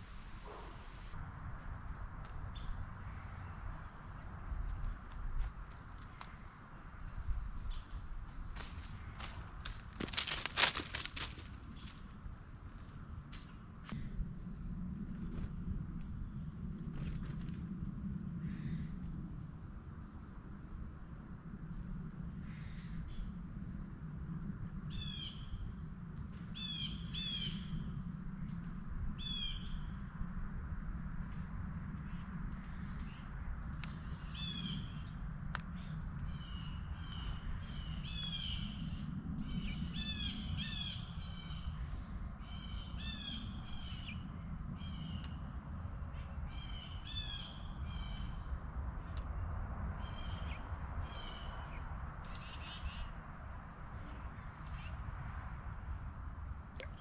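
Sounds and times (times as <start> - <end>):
steady low rumble: 0.0 - 10.3, 11.3 - 52.2
songbirds chirping: 31.4 - 57.0.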